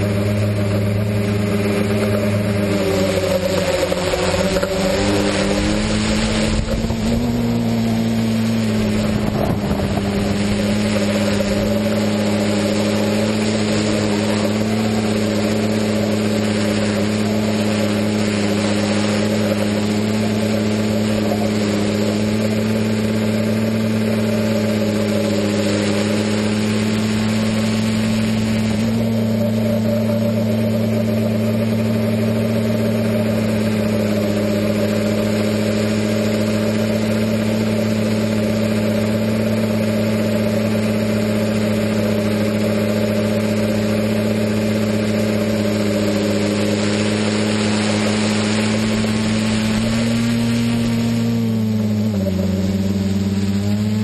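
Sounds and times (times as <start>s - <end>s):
drone motors humming: 0.0s - 54.0s.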